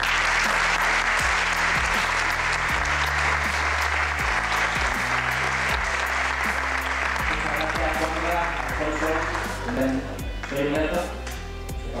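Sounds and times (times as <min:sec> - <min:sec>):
audience applauding: 0:00.0 - 0:10.7
background music: 0:00.0 - 0:12.0.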